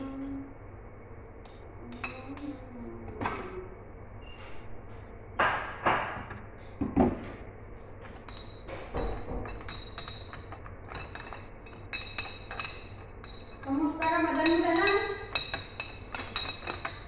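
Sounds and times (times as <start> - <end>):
metal spoon clinking on glass: 8.2 - 17.0.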